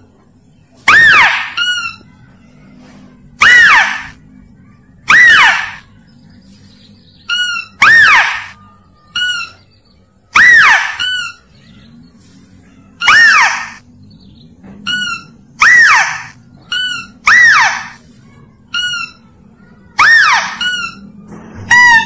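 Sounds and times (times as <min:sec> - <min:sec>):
mouse-deer lure call squeals: 0:00.9 - 0:02.0, 0:03.4 - 0:04.2, 0:05.1 - 0:05.9, 0:07.3 - 0:09.6, 0:10.3 - 0:11.5, 0:13.0 - 0:13.8, 0:14.9 - 0:18.0, 0:20.0 - 0:21.0, 0:21.6 - 0:22.0.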